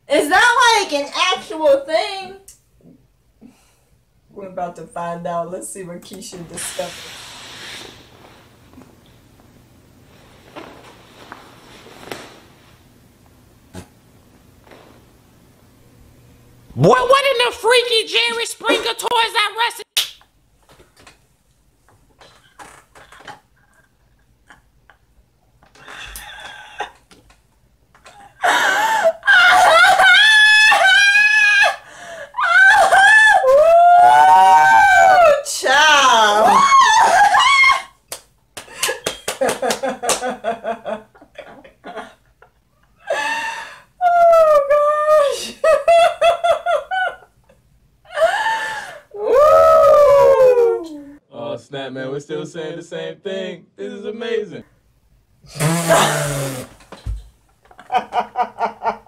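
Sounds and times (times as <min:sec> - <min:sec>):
women laughing: 0:28.4 - 0:31.8, 0:38.7 - 0:43.6, 0:45.2 - 0:47.3, 0:57.7 - 0:59.0.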